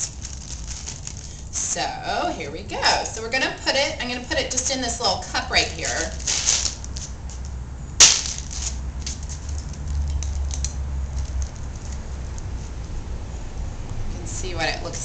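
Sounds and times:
ice cream scooping handling noises: 0:00.0 - 0:01.6, 0:05.5 - 0:13.1
low steady hum: 0:00.0 - 0:15.0.

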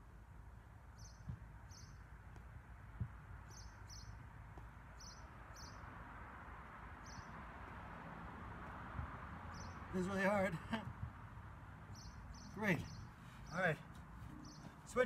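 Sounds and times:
bird chirping: 0:00.9 - 0:02.1, 0:03.4 - 0:04.2, 0:04.9 - 0:05.9, 0:07.0 - 0:07.4, 0:09.5 - 0:10.2, 0:11.8 - 0:15.0.

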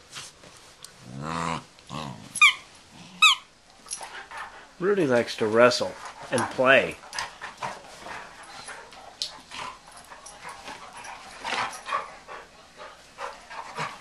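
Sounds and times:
dogs scuffling: 0:03.8 - 0:14.0.

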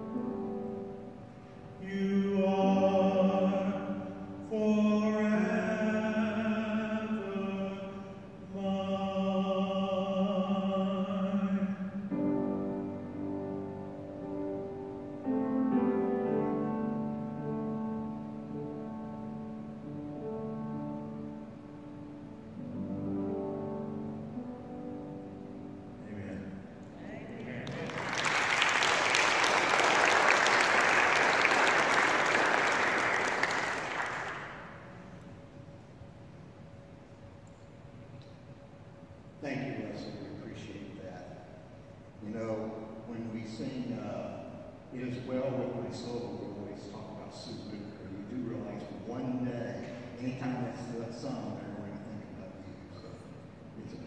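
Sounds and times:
person singing slow worship song: 0:00.0 - 0:35.8
congregation clapping: 0:27.4 - 0:35.1.

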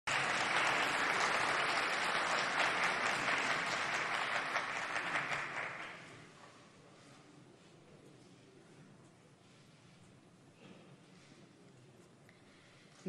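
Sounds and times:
crowd applauding: 0:00.1 - 0:06.2.

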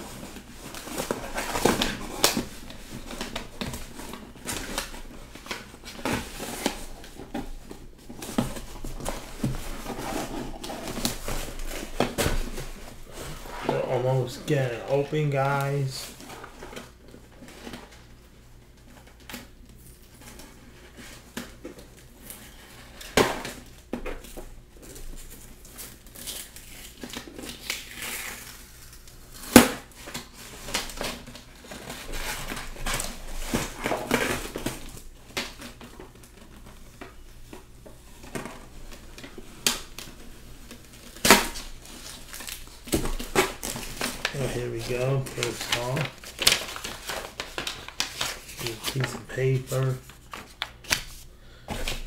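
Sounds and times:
cardboard scraping and crinkling: 0:00.0 - 0:18.0, 0:29.8 - 0:52.0
cardboard snapping: 0:41.1 - 0:44.3.

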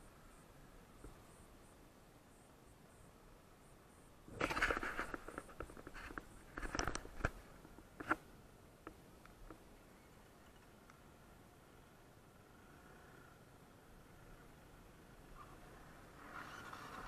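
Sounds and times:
scraping and rustling: 0:04.3 - 0:08.2.

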